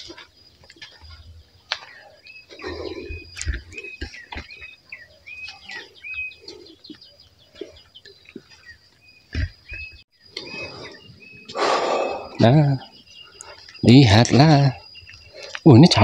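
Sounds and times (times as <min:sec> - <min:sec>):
footsteps thumping: 0:03.3 - 0:04.8, 0:08.3 - 0:10.0.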